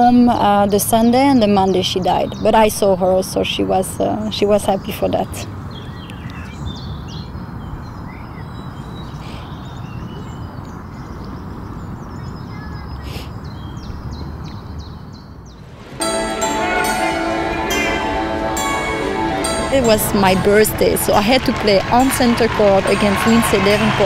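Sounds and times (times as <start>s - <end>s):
birds chirping: 0.0s - 24.0s
music: 15.8s - 24.0s.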